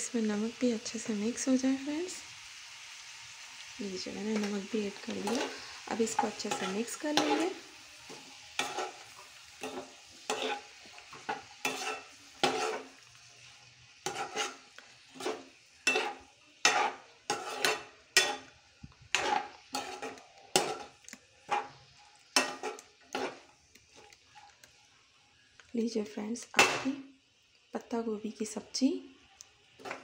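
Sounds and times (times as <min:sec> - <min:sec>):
cabbage sizzling in oil: 0:00.0 - 0:30.0
wooden spatula scraping pan: 0:04.3 - 0:13.1, 0:14.0 - 0:18.5, 0:19.1 - 0:24.1, 0:29.8 - 0:30.0.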